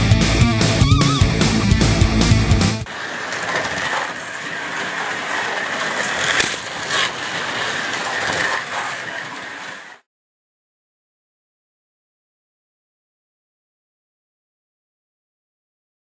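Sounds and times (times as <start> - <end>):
slot cars whirring on track: 0.1 - 10.0.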